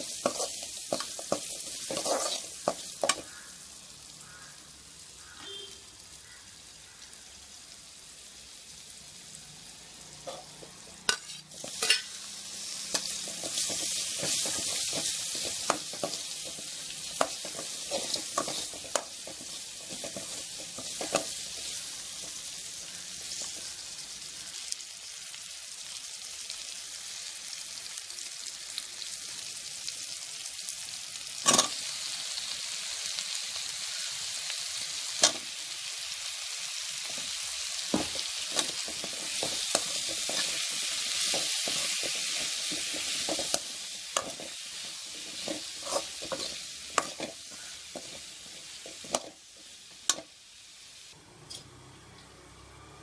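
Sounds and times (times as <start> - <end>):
vegetables sizzling in oil: 0.0 - 53.0
metal spatula knocking on pan: 37.9 - 40.5.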